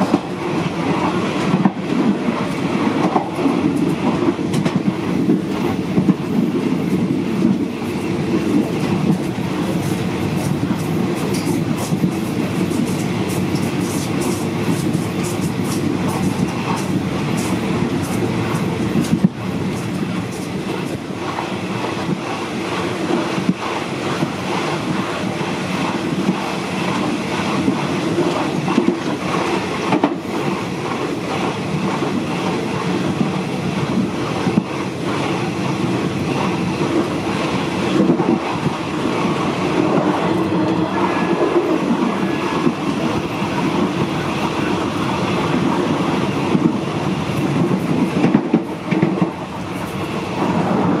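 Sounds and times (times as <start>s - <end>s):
sharp clicks of wheels on rails: 0.0s - 51.0s
train rumbling and rattling: 0.0s - 51.0s.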